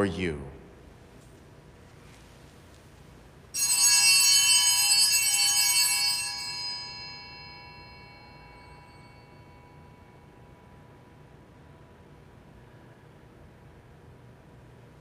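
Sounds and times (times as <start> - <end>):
bells ringing: 3.6 - 10.6.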